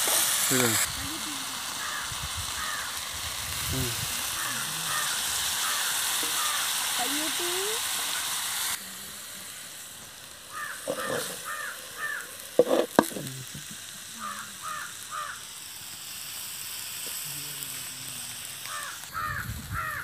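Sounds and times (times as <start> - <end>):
food sizzling in a pan: 0.0 - 20.0
crow cawing: 1.8 - 3.0, 4.2 - 6.9, 10.5 - 12.4, 14.2 - 15.5, 18.7 - 20.0.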